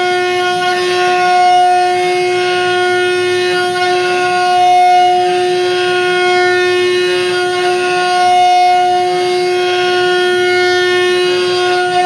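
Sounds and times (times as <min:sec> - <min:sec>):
spindle motor whine: 0:00.0 - 0:12.0.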